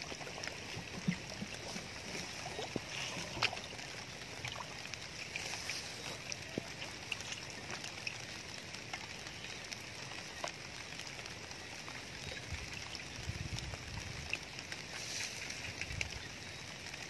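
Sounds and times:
small ticks and patters: 0.0s - 17.0s
steady hiss: 14.7s - 15.8s.

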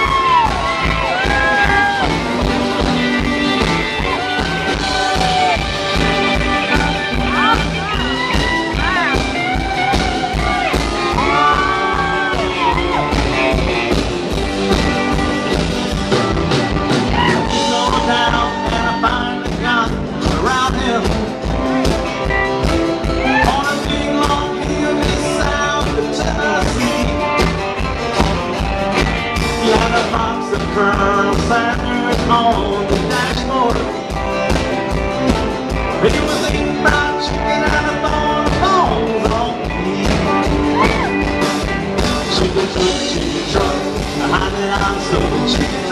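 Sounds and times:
drum beat: 0.0s - 45.9s
electric guitar: 0.0s - 45.9s
person singing: 3.2s - 13.7s, 17.0s - 22.0s, 22.7s - 27.5s, 29.4s - 34.3s, 35.8s - 45.9s.

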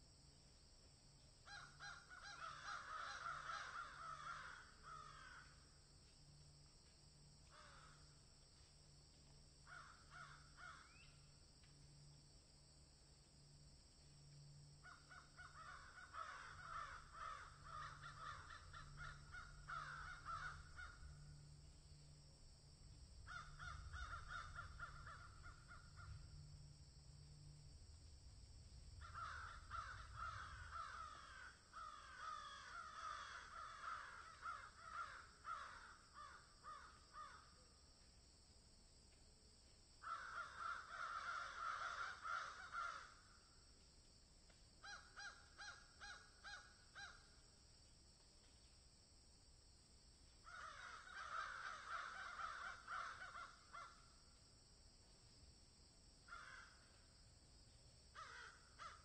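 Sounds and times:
crows cawing: 1.4s - 5.8s, 7.4s - 8.3s, 9.6s - 11.0s, 14.8s - 21.6s, 23.2s - 26.3s, 29.0s - 37.5s, 40.0s - 43.4s, 44.8s - 47.3s, 50.4s - 54.1s, 56.3s - 57.0s, 58.1s - 59.0s.

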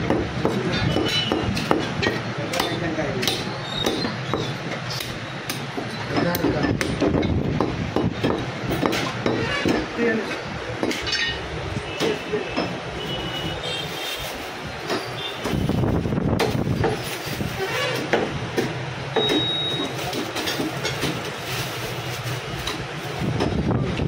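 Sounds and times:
cleaver chopping meat: 0.0s - 9.8s
road traffic rumble: 0.0s - 24.0s.

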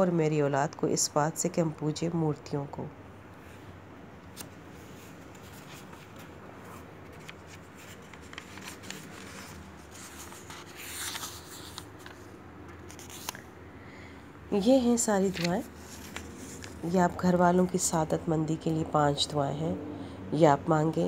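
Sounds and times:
book pages rustling: 4.2s - 13.6s, 14.9s - 18.0s.

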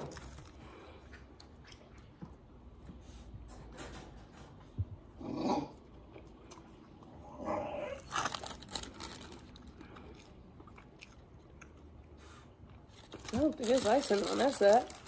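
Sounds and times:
puppy whining: 7.2s - 8.1s
paper wrapper crinkling: 8.0s - 9.8s, 12.9s - 15.0s
chewing: 8.0s - 15.0s.

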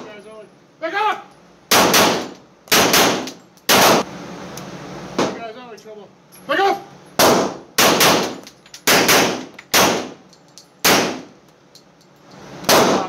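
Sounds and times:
pistol shots echoing indoors: 1.7s - 4.0s, 7.2s - 10.2s, 12.7s - 13.0s.

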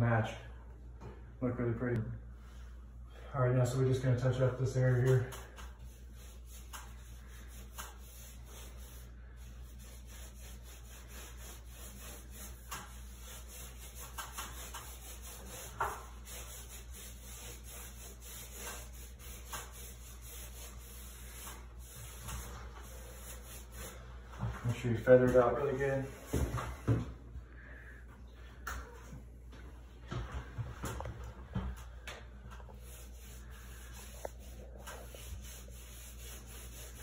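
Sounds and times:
paintbrush rubbing strokes: 4.3s - 37.0s.

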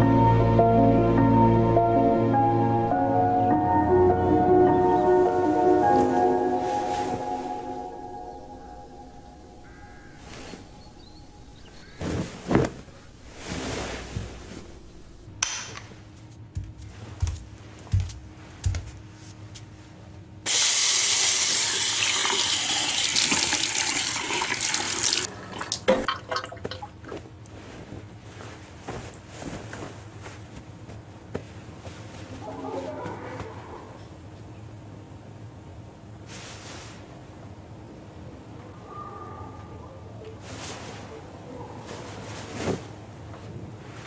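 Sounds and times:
rustling: 5.2s - 19.9s, 27.1s - 33.8s, 40.3s - 44.0s
tap water running into basin: 20.5s - 27.0s.

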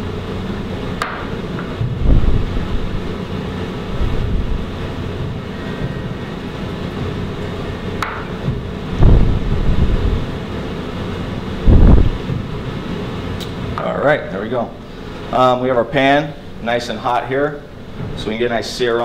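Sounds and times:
ventilation hum: 0.0s - 19.0s
microphone thumps and rustles: 1.7s - 3.0s, 8.4s - 10.3s, 11.6s - 12.6s.

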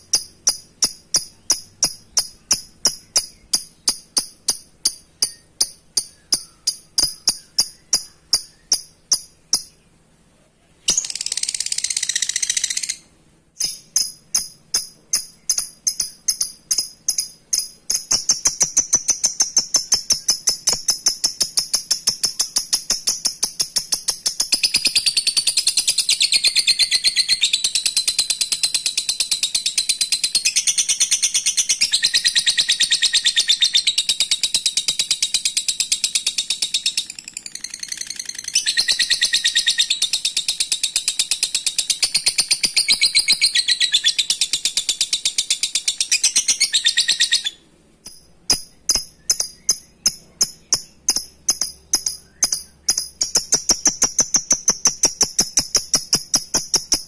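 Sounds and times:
bird sharp ticking calls: 0.0s - 10.0s, 10.9s - 57.0s
bird shrill chattering trill: 36.8s - 41.1s, 41.9s - 47.6s.

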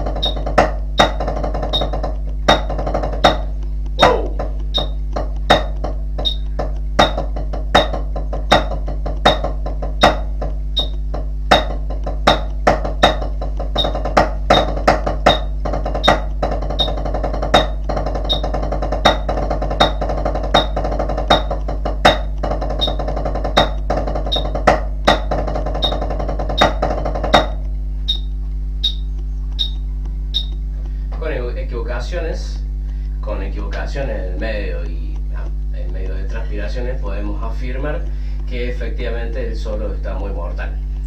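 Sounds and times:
metronome click: 3.3s - 13.2s, 26.6s - 30.7s.

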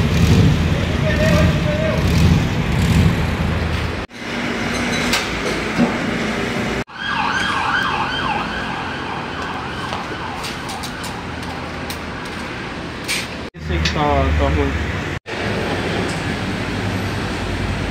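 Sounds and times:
street and workshop noise: 0.0s - 17.9s
siren yelping: 6.9s - 11.7s.

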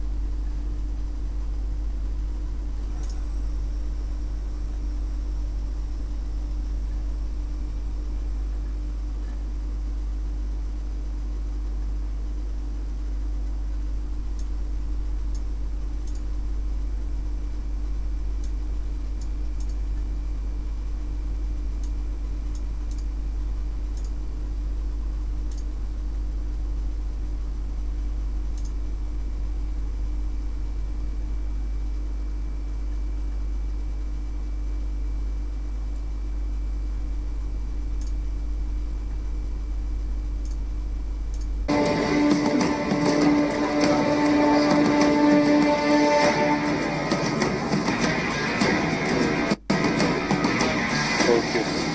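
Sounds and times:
electrical hum with hiss: 0.0s - 51.9s
faint sharp clicks: 38.0s - 38.2s, 41.3s - 41.5s.

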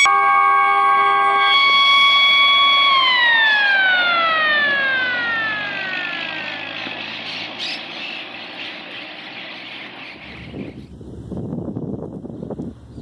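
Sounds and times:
wind buffeting microphone: 9.8s - 13.0s.

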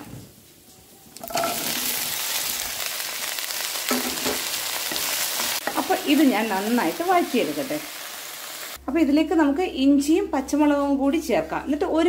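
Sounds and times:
okra sizzling in hot oil: 1.1s - 8.8s.

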